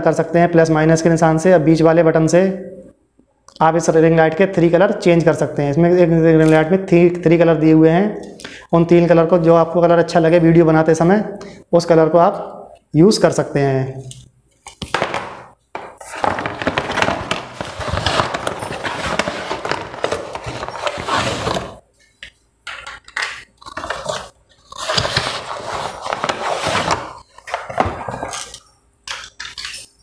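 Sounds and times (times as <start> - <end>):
packaging rustling: 14.7 - 21.8, 23.4 - 28.7.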